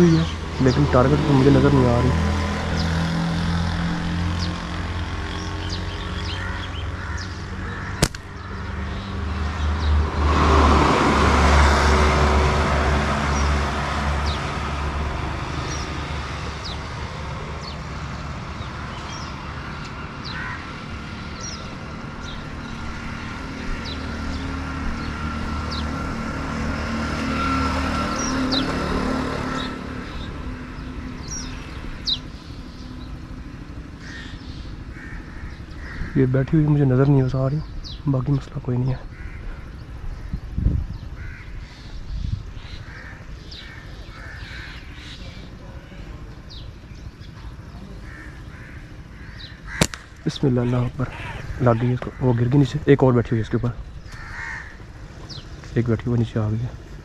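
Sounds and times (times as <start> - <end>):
small birds chirping: 0.0 - 10.1, 15.6 - 26.0, 29.5 - 57.0
vehicles passing: 0.0 - 57.0
sharp click: 8.0 - 8.3, 49.8 - 50.1.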